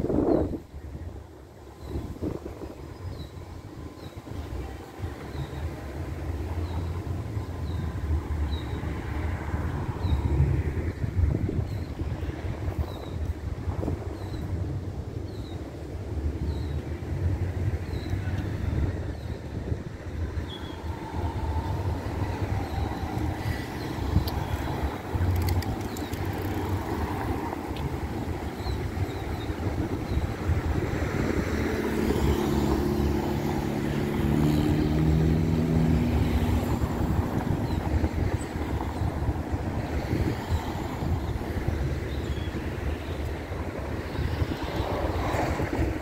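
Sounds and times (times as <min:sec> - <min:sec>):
street traffic rumble: 0:00.0 - 0:46.0
passing vehicle engine hum: 0:15.7 - 0:46.0.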